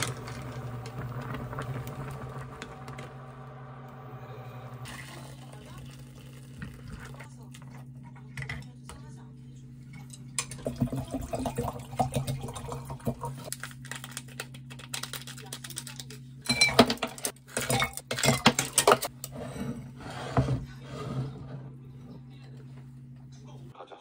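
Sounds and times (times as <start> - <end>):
steady low hum: 0.0 - 13.5
dishes and cutlery clattering: 16.5 - 20.7.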